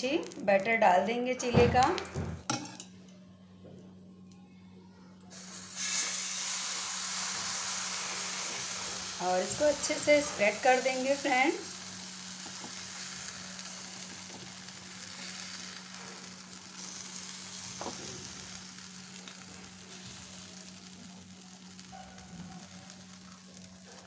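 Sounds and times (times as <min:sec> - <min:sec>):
batter sizzling on hot griddle: 0:05.3 - 0:24.0.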